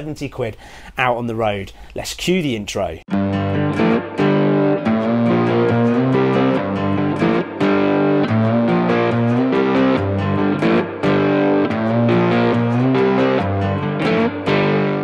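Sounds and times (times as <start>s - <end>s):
guitar-driven intro music: 3.1s - 15.0s.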